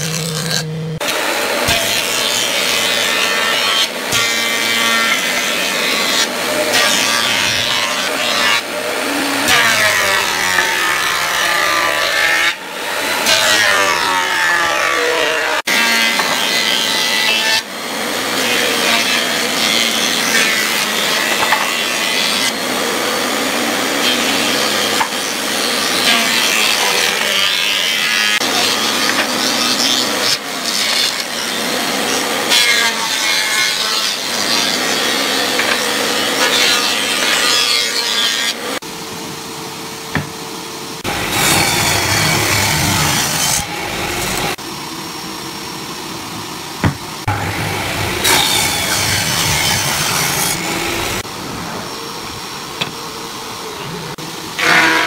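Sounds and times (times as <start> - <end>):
planer cutting wood: 0.0 - 39.1, 40.1 - 44.7, 46.3 - 52.2, 53.8 - 55.0
machine hum: 38.4 - 55.0.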